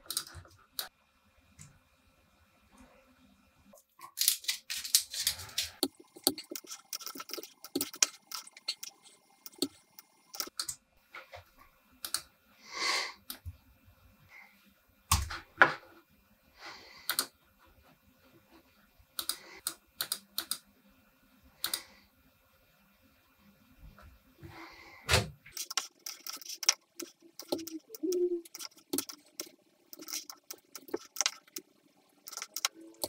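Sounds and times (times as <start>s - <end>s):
keyboard and mouse clicking: 0.0s - 0.9s, 4.3s - 10.8s, 17.1s - 17.3s, 19.2s - 20.6s, 21.6s - 21.8s, 25.5s - 31.6s, 32.2s - 33.0s.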